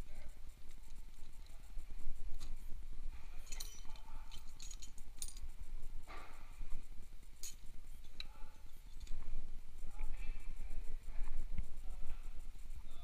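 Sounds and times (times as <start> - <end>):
steady low hum: 0.0 - 13.0
metal hand tools clinking: 3.4 - 5.5, 7.4 - 8.3.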